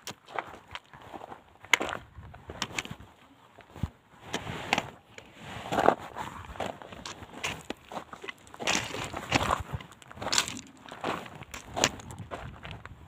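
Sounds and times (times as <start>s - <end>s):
footsteps crunching on gravel: 5.7s - 13.0s
small stone clicks: 7.0s - 13.0s.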